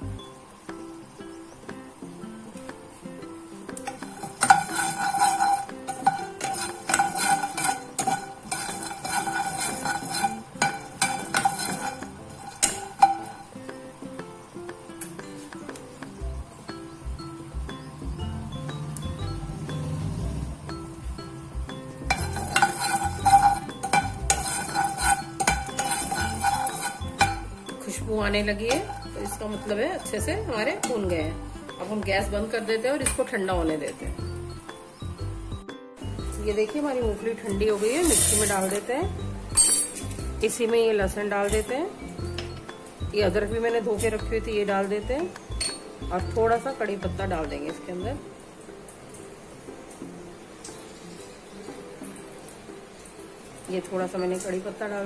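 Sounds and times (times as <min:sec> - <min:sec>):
soft background music: 0:00.0 - 0:55.0
spatula scraping nuts in pan: 0:03.8 - 0:13.7, 0:22.1 - 0:31.2, 0:37.4 - 0:38.9.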